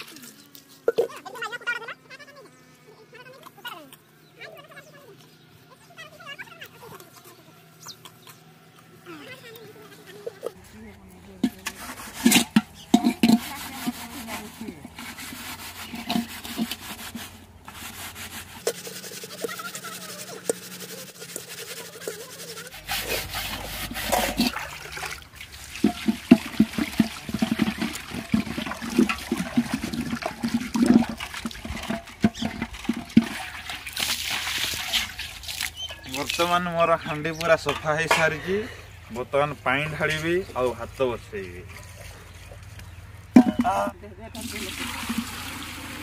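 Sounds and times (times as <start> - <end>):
scrubbing a metal pot: 9.7 - 38.5, 43.4 - 46.0
water sloshing in pot: 11.3 - 36.6, 43.3 - 46.0
water poured out splashing: 22.7 - 36.6, 44.4 - 46.0.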